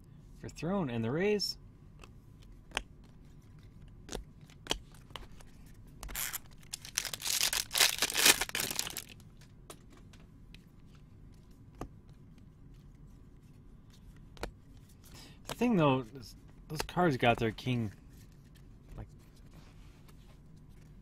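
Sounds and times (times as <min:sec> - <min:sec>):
foil wrapper tearing and crinkling: 0:06.1 - 0:09.2.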